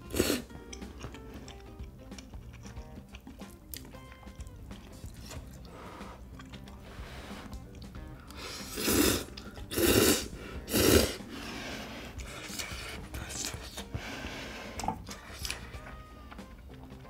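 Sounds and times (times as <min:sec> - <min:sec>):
person slurping noodles: 0:00.0 - 0:00.5, 0:08.4 - 0:15.6
chewing with mouth clicks: 0:00.1 - 0:06.8, 0:07.4 - 0:08.4, 0:14.8 - 0:17.0.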